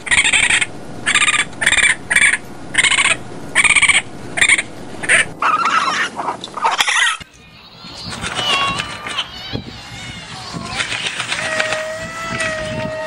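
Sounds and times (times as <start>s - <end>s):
young raccoon calling: 0.0s - 7.3s.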